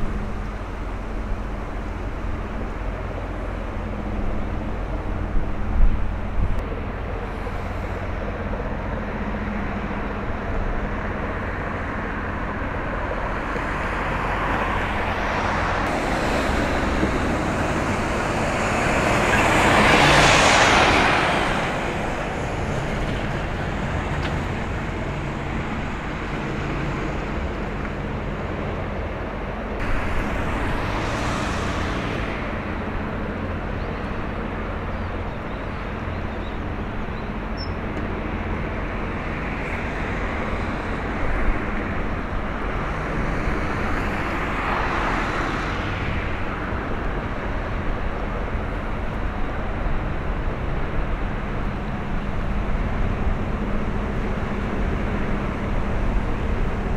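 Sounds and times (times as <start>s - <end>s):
steady low rumble: 0.0s - 35.2s
road traffic passing: 0.0s - 56.9s.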